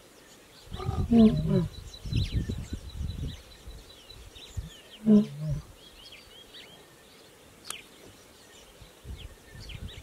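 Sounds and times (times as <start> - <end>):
small birds chirping: 0.0 - 10.0
lion roaring grunt: 0.7 - 1.8.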